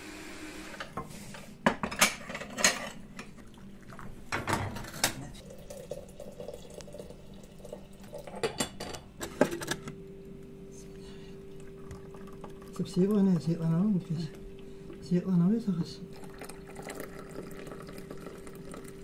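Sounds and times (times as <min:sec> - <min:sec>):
water pouring from kettle: 0:05.4 - 0:08.4, 0:11.6 - 0:13.4, 0:16.1 - 0:19.0
crockery and metal bowl clinking: 0:07.6 - 0:09.6.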